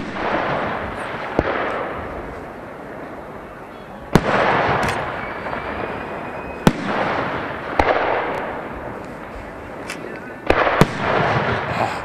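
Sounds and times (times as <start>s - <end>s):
firework shells bursting: 4.2s - 11.7s.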